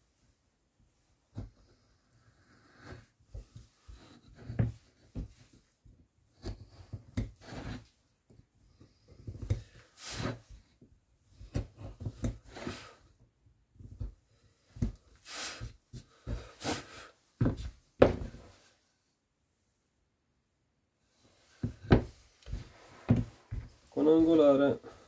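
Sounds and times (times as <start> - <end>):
carving tool scraping wood: 2.2 - 3.1, 3.9 - 5.2, 6.4 - 7.9, 9.2 - 10.4.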